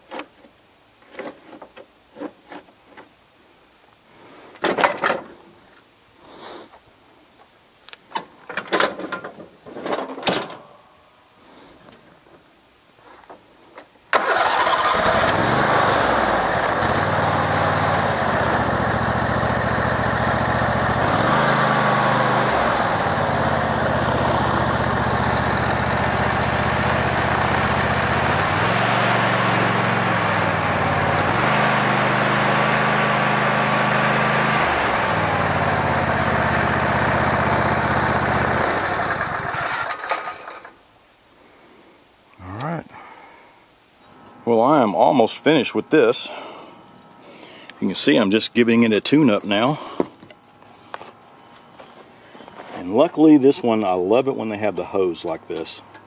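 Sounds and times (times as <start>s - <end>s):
riding mower engine running: 14.1s - 40.8s.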